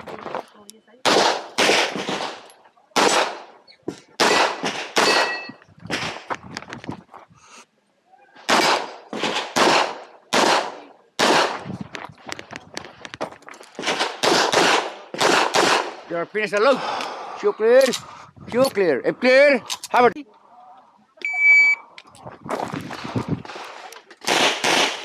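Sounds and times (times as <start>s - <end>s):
pistol shots: 1.0s - 3.5s, 4.2s - 6.2s, 8.5s - 11.6s, 13.8s - 16.1s, 24.2s - 25.0s.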